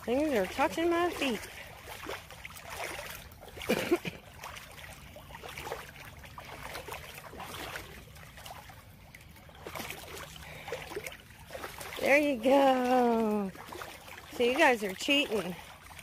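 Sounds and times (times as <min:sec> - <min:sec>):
water sloshing and splashing: 0:00.0 - 0:16.0.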